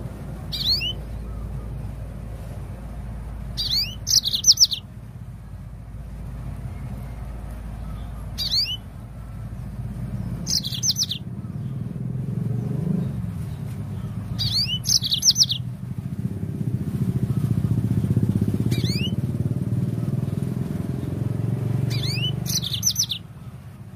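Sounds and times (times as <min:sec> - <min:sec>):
low engine hum: 0:00.0 - 0:23.9
canary chirping: 0:00.2 - 0:02.1, 0:03.4 - 0:04.9, 0:06.6 - 0:16.1, 0:17.4 - 0:23.6.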